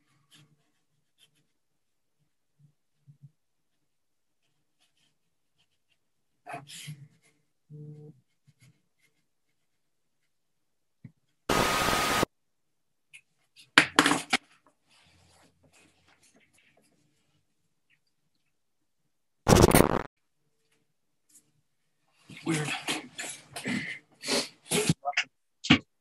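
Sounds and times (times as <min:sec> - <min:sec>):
burst of loud hissing: 0:11.5 - 0:12.3.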